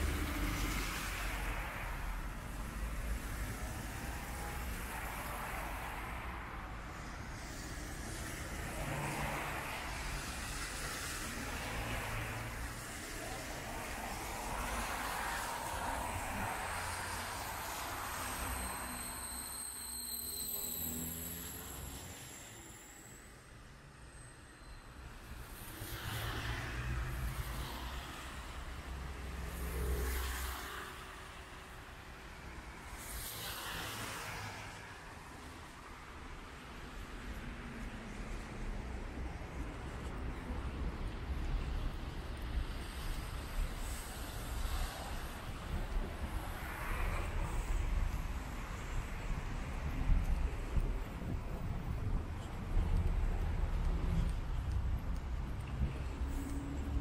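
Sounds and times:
tyres hissing on wet road: 0.0 - 51.1, 52.8 - 57.0
cars passing by: 0.0 - 57.0
low traffic rumble: 36.9 - 57.0.

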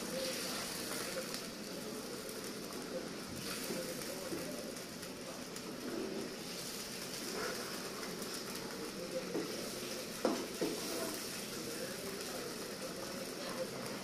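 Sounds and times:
curry sizzling and bubbling: 0.0 - 14.0.

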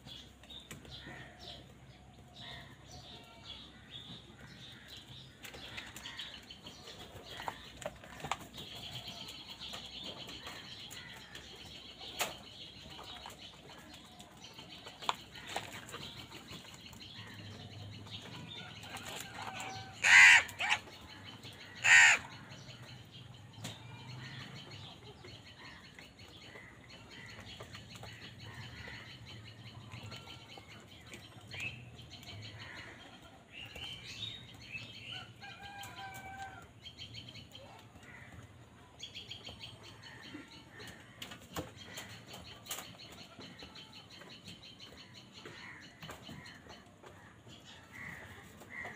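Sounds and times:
crows cawing: 19.6 - 20.8, 21.7 - 22.4.

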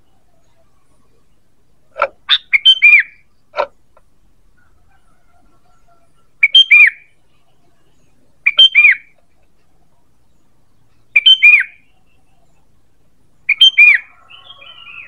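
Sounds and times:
bird whistled calls: 2.3 - 3.2, 6.4 - 7.1, 8.4 - 9.1, 11.2 - 11.9, 13.5 - 15.0.

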